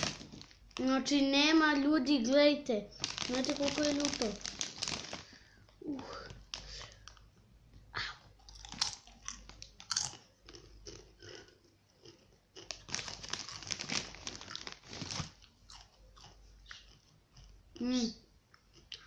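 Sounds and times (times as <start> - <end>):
person crunching corn chips: 3.0 - 5.4, 8.4 - 17.5.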